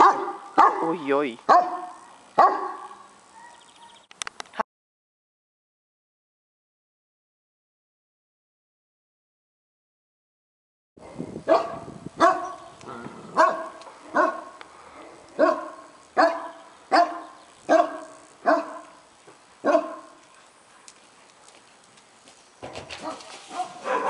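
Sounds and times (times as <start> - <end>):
large dog barking: 0.0 - 4.0, 11.0 - 19.0, 19.6 - 20.2, 23.0 - 24.0.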